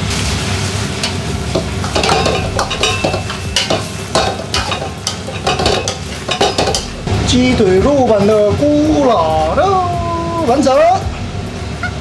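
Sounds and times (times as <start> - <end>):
food sizzling in a wok: 0.0 - 12.0
metal ladle clanking against wok: 1.0 - 7.1.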